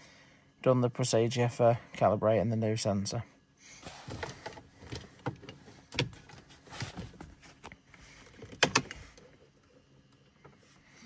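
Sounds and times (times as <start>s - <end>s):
clicks and knocks in car cabin: 4.0s - 9.3s.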